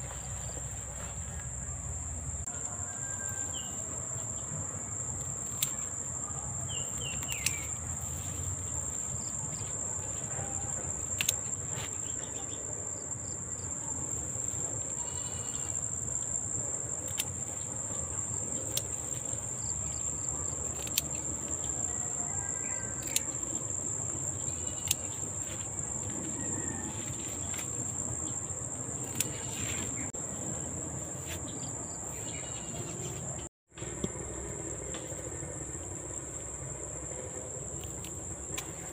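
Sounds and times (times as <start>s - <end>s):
insects trilling: 0.0s - 38.9s
pruning shears snipping stalks: 5.2s - 5.9s, 6.9s - 8.5s, 10.4s - 12.0s, 29.0s - 30.0s.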